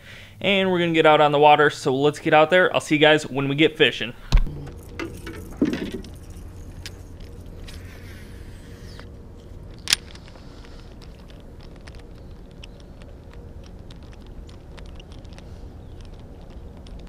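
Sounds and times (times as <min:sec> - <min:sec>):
fishing reel spool whirring: 0:04.5 - 0:10.9.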